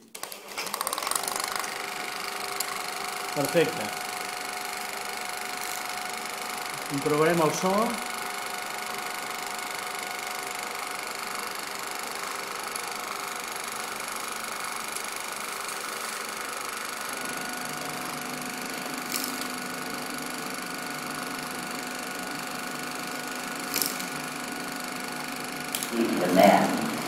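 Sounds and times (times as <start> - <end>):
film projector mechanical whirr: 0.0 - 27.0
steady hum: 14.0 - 27.0.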